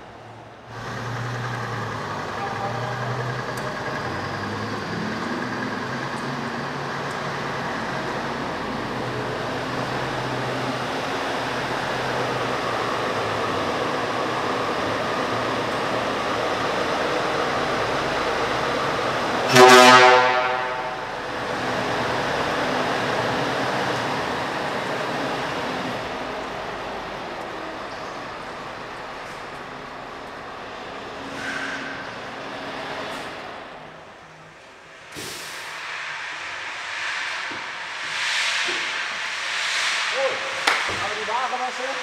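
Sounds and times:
diesel truck engine idling: 0.0s - 19.5s
truck horn blast: 19.4s - 21.2s.

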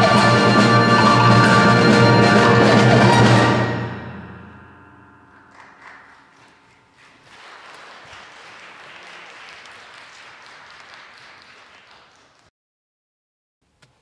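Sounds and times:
audience applause: 5.5s - 12.5s.

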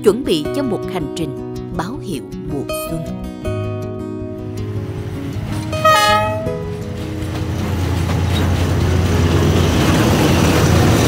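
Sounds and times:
train passing rumble: 4.6s - 11.0s
locomotive horn blast: 5.6s - 6.9s.

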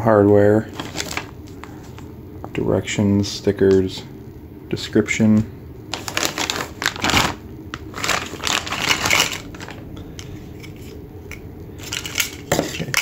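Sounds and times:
plastic bag crinkling: 0.7s - 1.8s, 5.9s - 9.9s.

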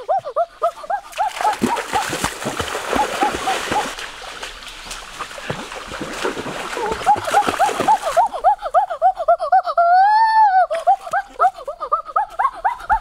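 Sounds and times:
animal high calls: 0.0s - 2.3s
water splashing in a creek: 0.0s - 9.0s, 10.7s - 13.0s.

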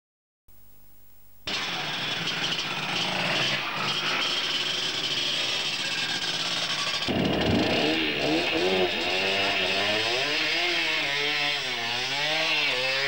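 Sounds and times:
motorcycles revving: 1.5s - 13.0s.

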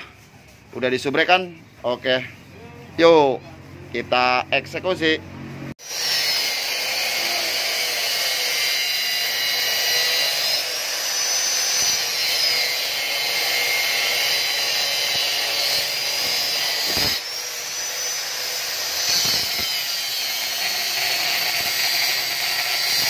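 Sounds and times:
angle grinder cutting metal: 5.8s - 23.0s.

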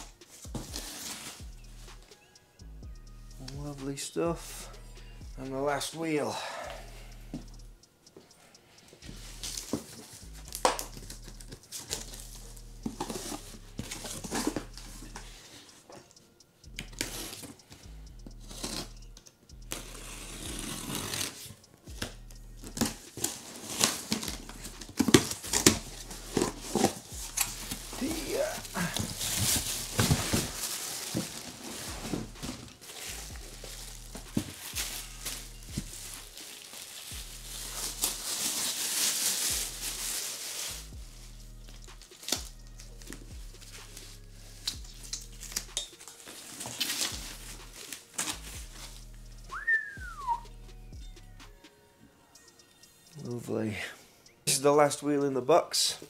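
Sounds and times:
plastic wrapping crinkling: 22.8s - 40.9s.

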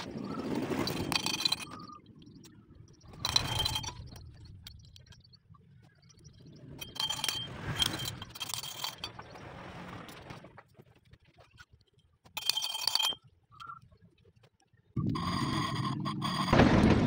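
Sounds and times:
metal engine parts clinking: 0.0s - 2.4s, 3.0s - 5.2s, 6.7s - 10.4s, 12.3s - 13.7s.

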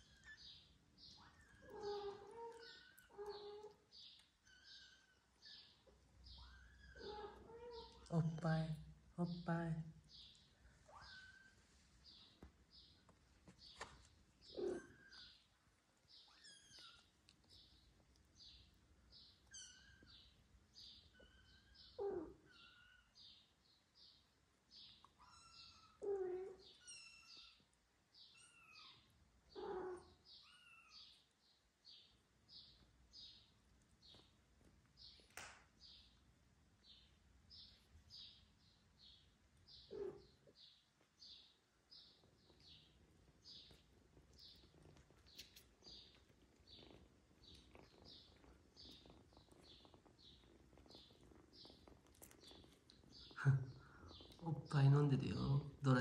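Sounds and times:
soft rustling: 10.4s - 18.9s, 42.1s - 53.4s
kittens mewing: 14.4s - 15.4s.

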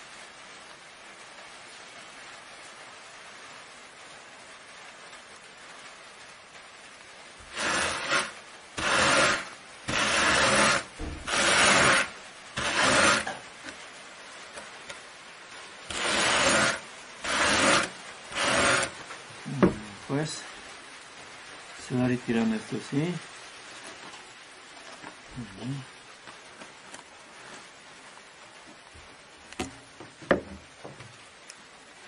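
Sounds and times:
hand cards rasping on wool: 7.4s - 13.4s, 15.9s - 19.0s.

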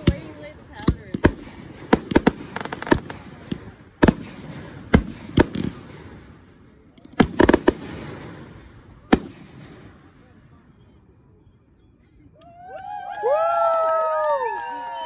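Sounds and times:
fireworks bangs: 0.0s - 10.6s
fireworks crackle: 0.8s - 10.3s.

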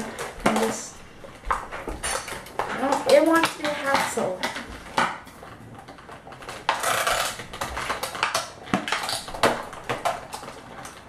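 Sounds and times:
plastic crinkling: 0.0s - 11.0s
scissors snipping plastic packaging: 2.0s - 11.0s.

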